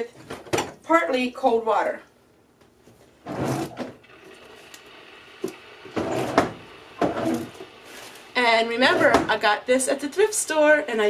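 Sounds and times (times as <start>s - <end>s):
faucet water splashing into sink: 4.0s - 7.7s.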